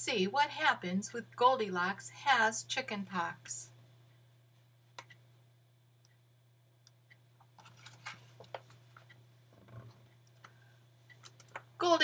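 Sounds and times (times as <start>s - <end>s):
low steady hum: 0.0s - 12.0s
book pages rustling: 7.6s - 8.8s.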